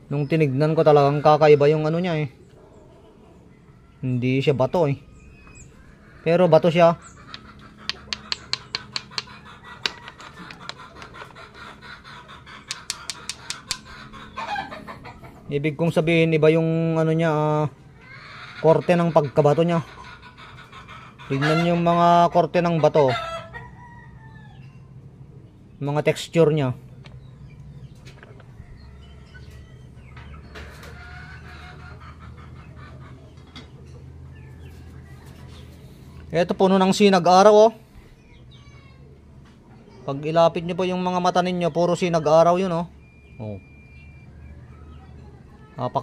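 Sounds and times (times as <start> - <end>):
faint bird calls and clucking: 0.0 - 46.0
stones clicking together: 7.9 - 11.2, 12.7 - 13.8.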